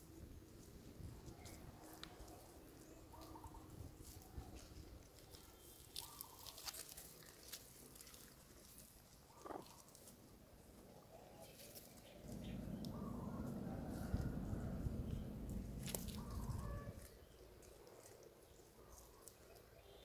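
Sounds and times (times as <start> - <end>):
dry leaves rustling underfoot: 0.4 - 20.0
loud low rumble: 12.2 - 17.1
animal calls: 12.2 - 17.2.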